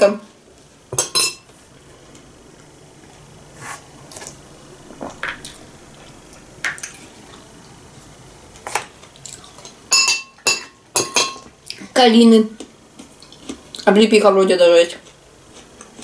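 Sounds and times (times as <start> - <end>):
metal spoon clinking on glass bowl: 1.0 - 1.4, 9.9 - 11.5
soft eating sounds: 1.4 - 9.9, 11.4 - 14.2, 14.8 - 16.0.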